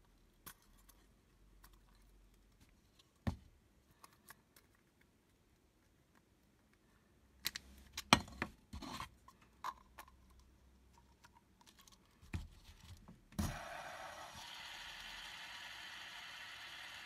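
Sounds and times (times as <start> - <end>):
fidget spinner whirring: 13.4 - 17.0.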